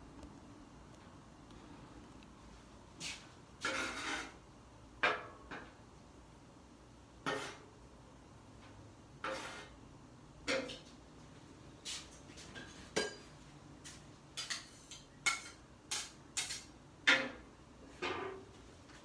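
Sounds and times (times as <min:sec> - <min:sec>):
metal spatula scraping griddle: 0:03.6 - 0:04.4, 0:07.2 - 0:07.7, 0:09.2 - 0:09.8.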